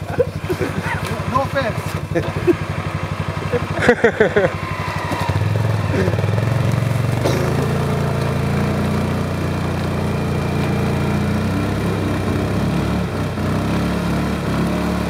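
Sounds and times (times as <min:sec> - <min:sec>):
quad engine running under load: 0:00.0 - 0:15.0.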